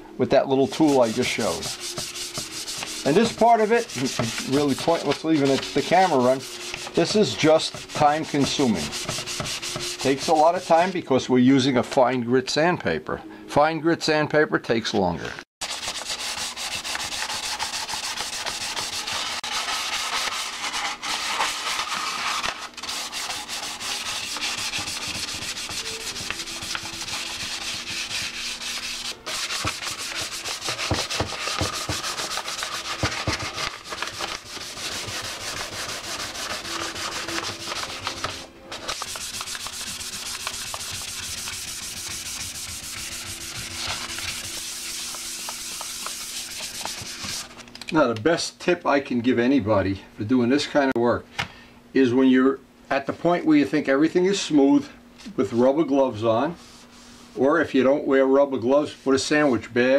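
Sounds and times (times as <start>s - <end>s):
hand sanding scratchy scrubbing: 0.5s - 11.0s, 15.6s - 47.6s.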